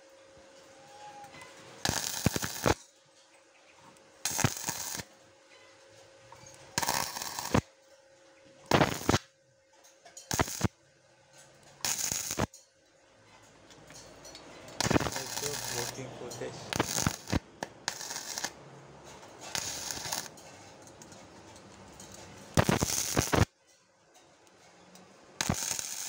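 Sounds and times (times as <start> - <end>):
welding arc crackling: 1.8 - 2.8, 4.2 - 5.1, 6.4 - 7.7, 8.7 - 9.3, 10.2 - 10.7, 11.8 - 12.6, 14.7 - 18.6, 19.2 - 20.5, 21.8 - 23.5, 25.4 - 26.0.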